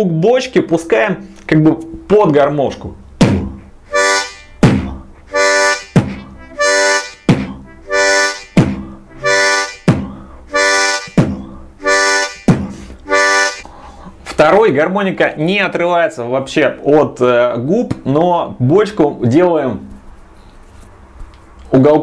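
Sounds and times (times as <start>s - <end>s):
beatboxed kick drum: 3.2s - 3.7s, 4.6s - 13.2s
harmonica chord: 3.5s - 14.0s.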